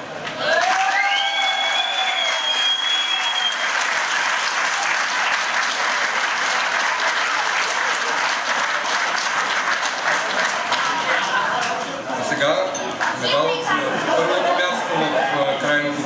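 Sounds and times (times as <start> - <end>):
crowd applauding: 0.2 - 12.1.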